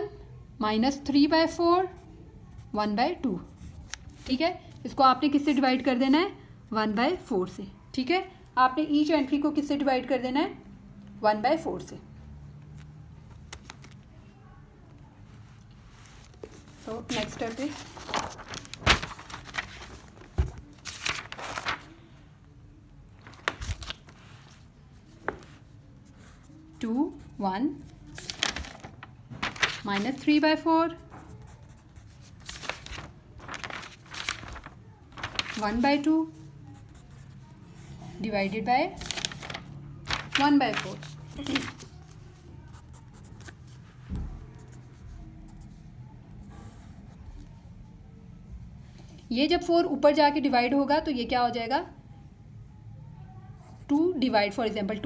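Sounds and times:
paper pages rustling: 12.7 - 14.1, 15.6 - 22.1, 23.1 - 26.4, 27.8 - 36.4, 39.0 - 44.8
pencil scratching on paper: 31.1 - 32.3.

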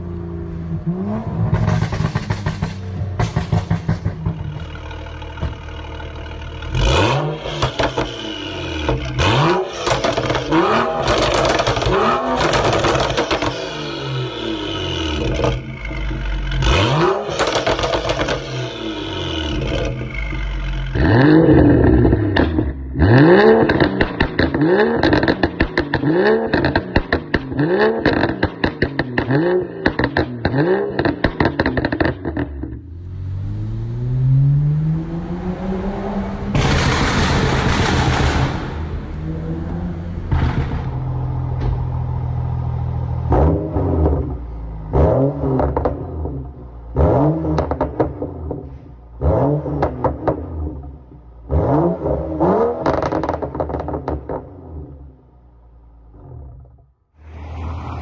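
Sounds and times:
exhaust crackling and popping: 1.5 - 6.9, 9.8 - 13.7, 17.3 - 18.6, 23.6 - 32.9, 36.4 - 43.4, 52.6 - 55.0.

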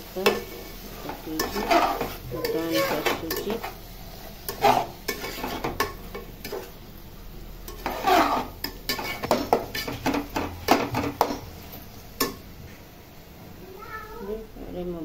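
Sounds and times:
spatula scraping metal pot: 0.2 - 6.8, 7.7 - 11.5.

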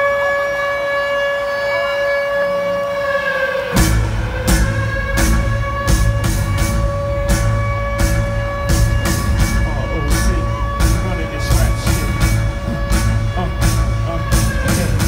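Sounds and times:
siren tone: 0.0 - 15.0
heavy beat with deep bass: 3.8 - 15.0.

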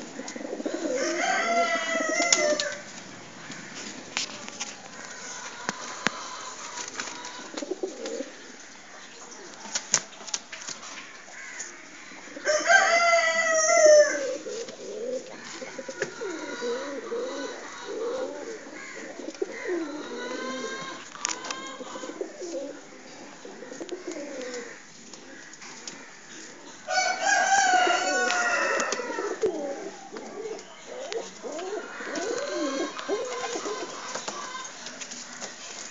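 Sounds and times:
pigeons cooing: 0.0 - 3.9, 4.9 - 9.8, 10.8 - 35.9.

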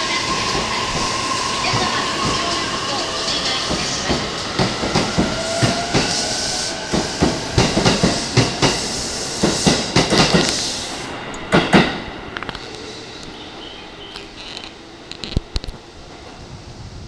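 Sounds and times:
train rolling rumble: 0.0 - 17.0
train wheels clacking over rail joints: 6.9 - 10.7.

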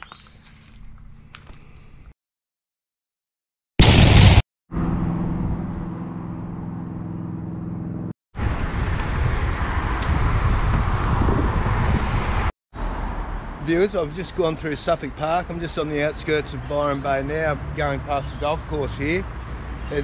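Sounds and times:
vehicle engine hum: 4.7 - 14.3
road and wind noise: 4.7 - 20.0.

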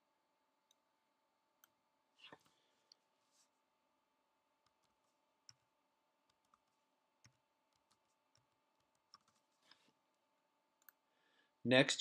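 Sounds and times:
computer keyboard keystrokes: 6.2 - 9.4.

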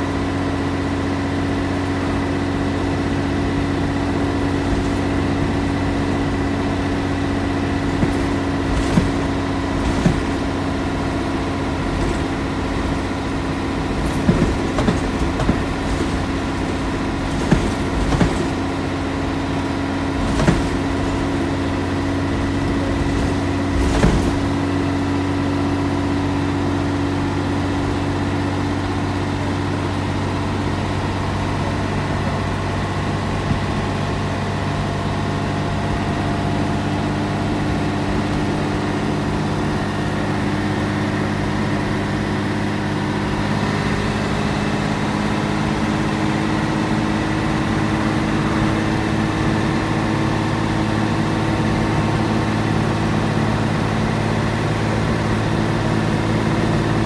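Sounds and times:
diesel bus engine idling: 0.0 - 57.0
sharp knocks and rattles: 4.1 - 25.4.

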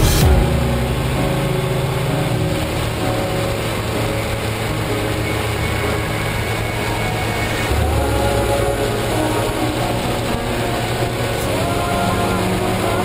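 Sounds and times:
wind and road noise: 0.0 - 11.6.

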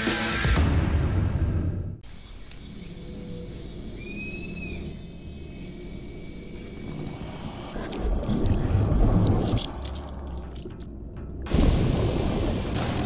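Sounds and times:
music: 0.0 - 2.0, 10.3 - 12.0
insects trilling: 2.0 - 7.8.

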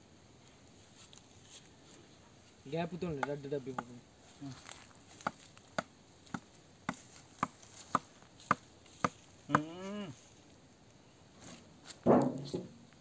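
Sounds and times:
tamper knocking on soil: 3.1 - 4.0, 5.1 - 9.7.

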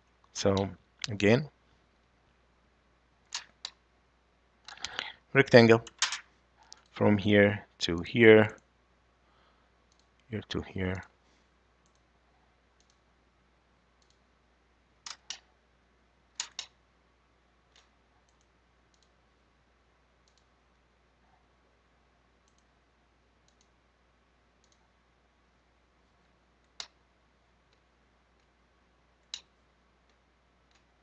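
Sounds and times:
faint steady hiss: 0.0 - 31.0
computer mouse clicks: 9.8 - 10.3, 11.8 - 12.1, 12.8 - 13.0, 14.0 - 14.2, 15.0 - 15.5, 16.4 - 16.8, 17.7 - 19.2, 20.2 - 20.5, 22.4 - 22.7, 23.4 - 23.8, 24.6 - 24.9, 26.6 - 27.0, 29.2 - 30.9.

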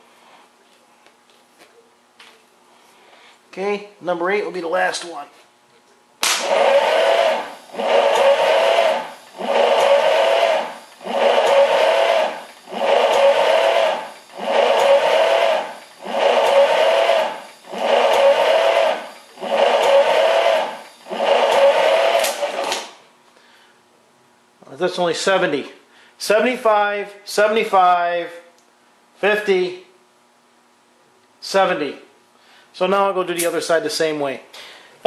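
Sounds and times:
starter motor whirring: 6.4 - 23.0.

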